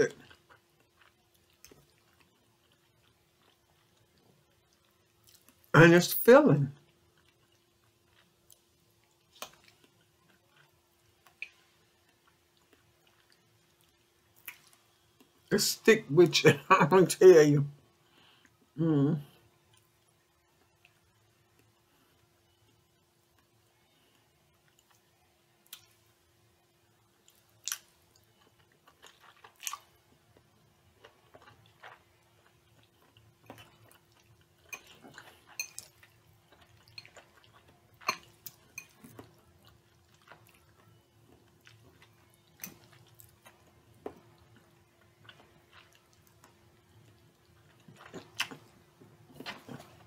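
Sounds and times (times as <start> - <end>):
person chewing: 0.0 - 5.7, 7.1 - 15.3, 27.2 - 50.0
faint steady hum: 0.0 - 50.0.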